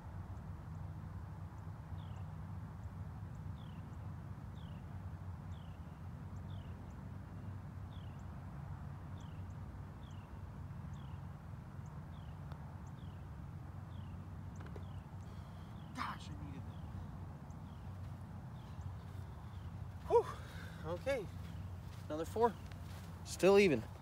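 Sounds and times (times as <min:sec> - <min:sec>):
steady low hum: 0:11.0 - 0:24.0.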